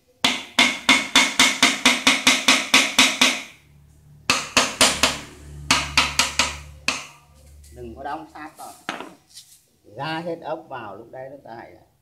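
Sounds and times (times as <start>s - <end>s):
hammer tapping on metal: 0.2s - 3.6s, 4.3s - 7.2s.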